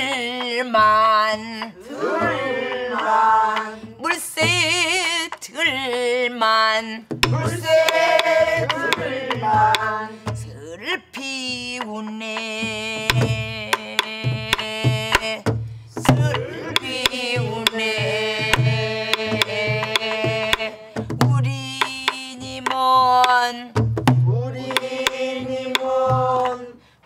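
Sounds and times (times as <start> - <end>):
stick clicks on wooden rim: 24.6 - 26.6.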